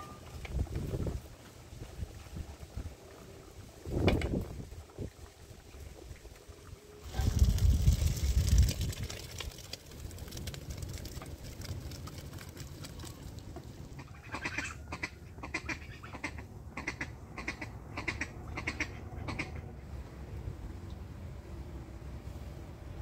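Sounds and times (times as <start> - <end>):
wind noise rumble: 0.4 - 6.4, 7.0 - 12.5
duck quacking: 14.0 - 19.6.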